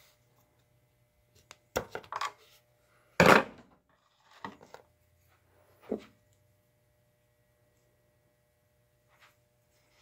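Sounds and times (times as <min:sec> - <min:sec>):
items clattering on workbench: 0:01.8 - 0:02.5, 0:03.2 - 0:04.9.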